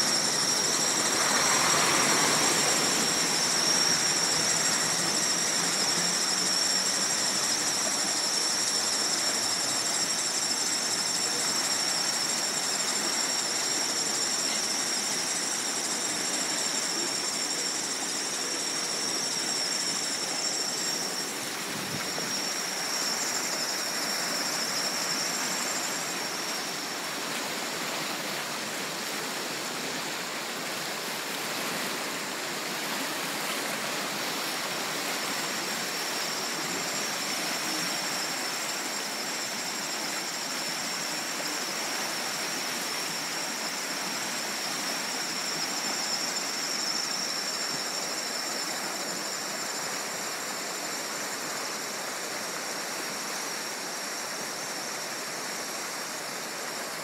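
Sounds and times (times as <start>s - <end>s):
floodwater rushing: 0.0s - 11.1s, 11.8s - 45.8s
thin high tone: 0.0s - 57.0s.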